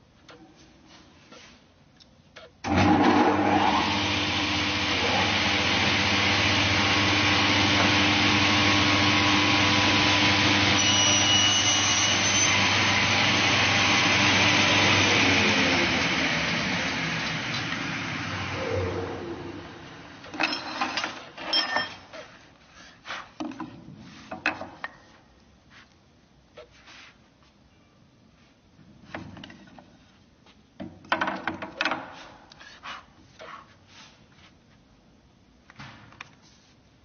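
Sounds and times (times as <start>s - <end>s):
panel saw cutting board: 4.8s - 17.7s.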